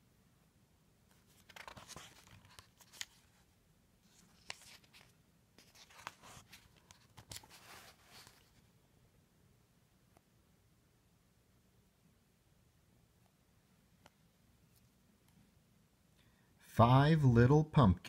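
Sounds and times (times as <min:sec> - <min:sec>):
book pages turning: 0:01.1 - 0:08.6.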